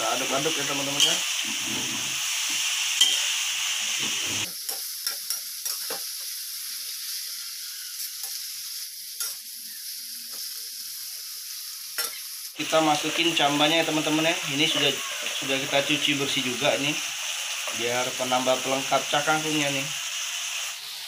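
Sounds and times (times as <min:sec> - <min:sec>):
vegetables sizzling in a wok: 0:00.0 - 0:21.0
metal spatula scraping wok: 0:00.8 - 0:06.0, 0:13.0 - 0:17.8.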